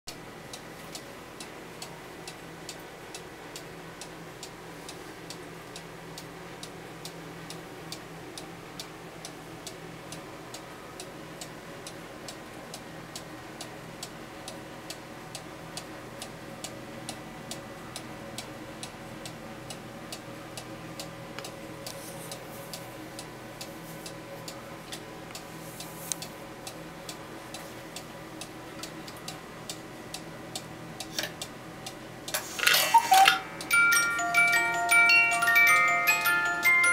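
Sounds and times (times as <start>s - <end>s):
cuckoo clock ticking: 27.9s - 36.9s.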